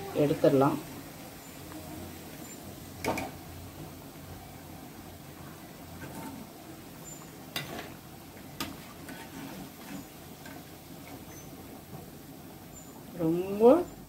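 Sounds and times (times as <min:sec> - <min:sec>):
oil sizzling: 0:00.0 - 0:14.0.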